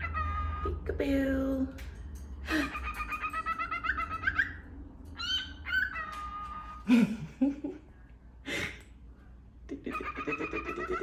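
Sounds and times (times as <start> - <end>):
cockatiel chirping and whistling: 2.9 - 4.6, 5.2 - 6.6.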